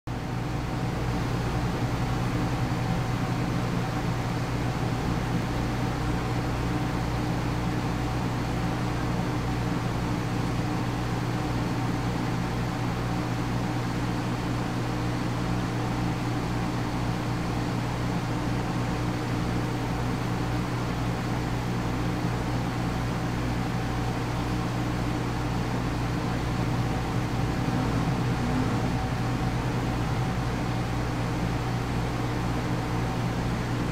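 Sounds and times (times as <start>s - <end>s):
aquarium pump humming: 0.2s - 7.8s, 22.7s - 33.9s.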